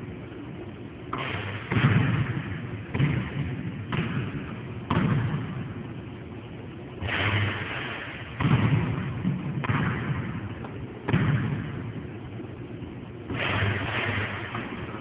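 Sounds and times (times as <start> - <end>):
basketball thudding on hard court: 1.1 - 5.7, 8.4 - 12.0.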